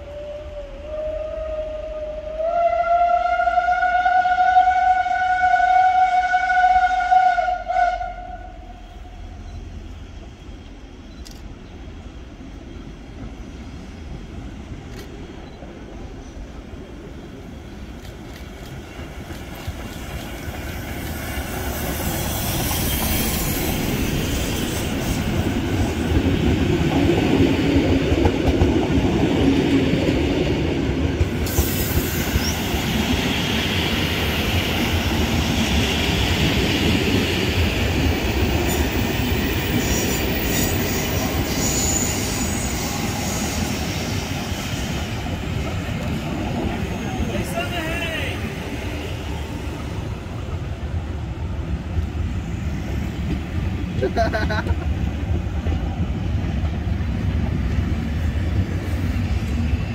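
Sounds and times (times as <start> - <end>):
steam whistle: 0.0 - 9.2
train wheels squealing: 8.8 - 14.4, 19.4 - 26.0, 31.4 - 50.0.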